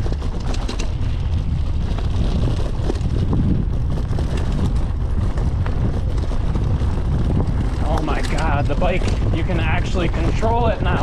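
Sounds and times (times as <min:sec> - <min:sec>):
bike clicks and rattles: 0:00.0 - 0:11.0
tyres rumbling on dirt: 0:00.0 - 0:11.0
wind on microphone: 0:00.0 - 0:11.0.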